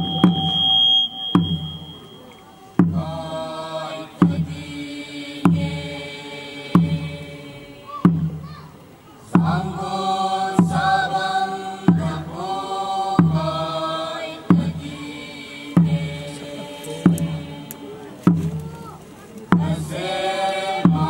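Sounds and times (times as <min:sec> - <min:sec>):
drum beating slowly: 0:00.0 - 0:21.0
group chanting: 0:02.8 - 0:08.1, 0:09.3 - 0:18.3, 0:19.5 - 0:21.0.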